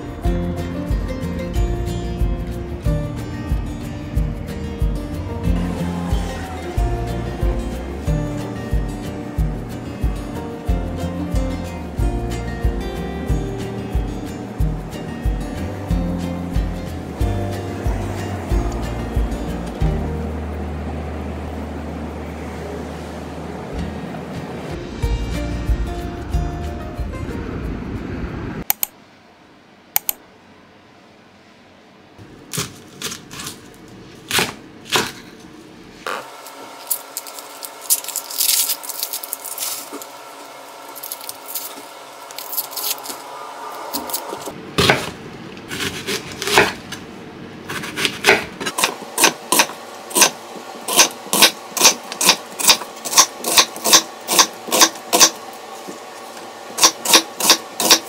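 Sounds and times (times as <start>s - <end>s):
faint steady hum: 0.0s - 58.0s
onion skin crackling: 36.1s - 44.4s
knife chopping on wooden board: 47.7s - 50.3s.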